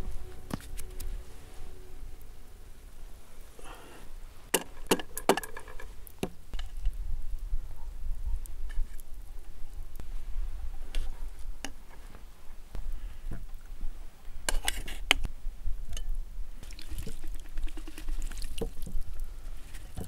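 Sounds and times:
broth pouring and dripping: 0:16.6 - 0:20.0.

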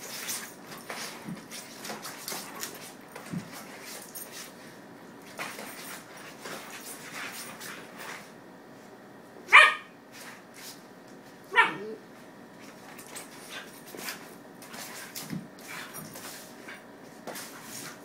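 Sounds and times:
dog claws on wooden floor: 0:00.0 - 0:04.6
dog barking: 0:09.5 - 0:10.0, 0:11.5 - 0:12.0.

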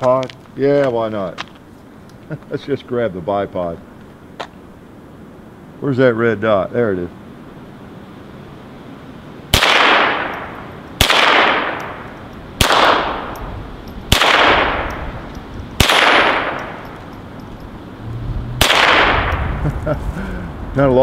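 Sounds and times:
pistol shots: 0:09.5 - 0:13.4, 0:14.1 - 0:15.1, 0:15.8 - 0:17.0, 0:18.6 - 0:19.4.

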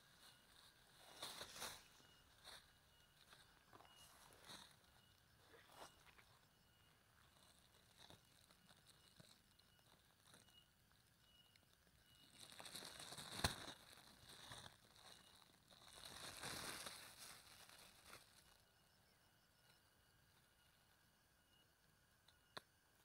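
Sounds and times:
plastic crackle: 0:07.2 - 0:10.5, 0:11.5 - 0:18.6
plastic bag crinkling: 0:12.3 - 0:18.5.

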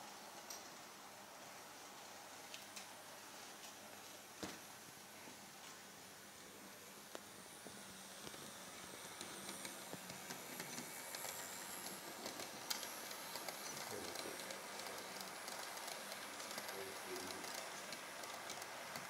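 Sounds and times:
model train hum: 0:05.0 - 0:19.0
model train wheels clicking: 0:07.1 - 0:19.0.

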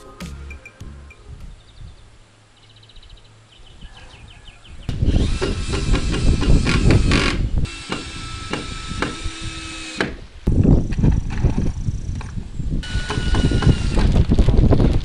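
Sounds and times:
power tool whine: 0:04.9 - 0:10.2, 0:12.8 - 0:14.2.

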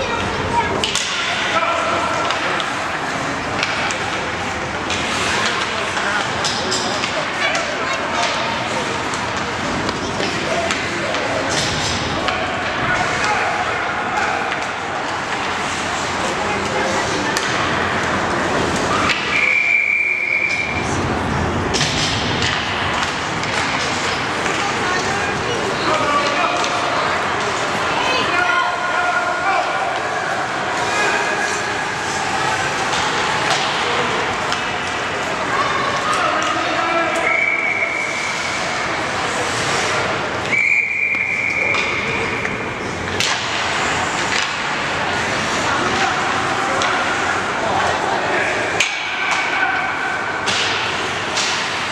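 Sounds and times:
crowd and skating noise: 0:00.0 - 0:51.9
rink background noise: 0:00.0 - 0:51.9
referee's whistle blown: 0:19.3 - 0:20.8, 0:40.5 - 0:41.8.

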